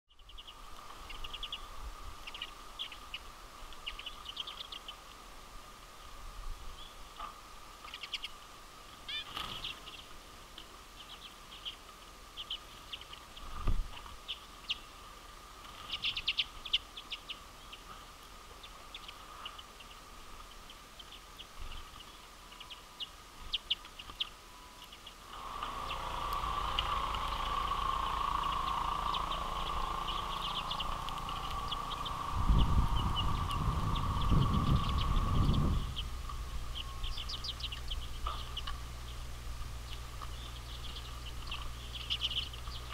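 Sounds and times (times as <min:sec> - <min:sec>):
birds twittering in a flock: 0:00.1 - 0:42.9
faint steady hum: 0:00.1 - 0:42.9
low rumble: 0:25.3 - 0:42.9.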